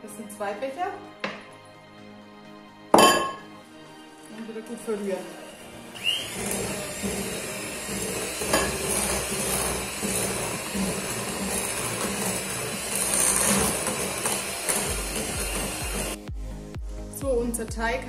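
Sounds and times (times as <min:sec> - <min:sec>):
electric hand mixer running: 0:04.7 - 0:16.2.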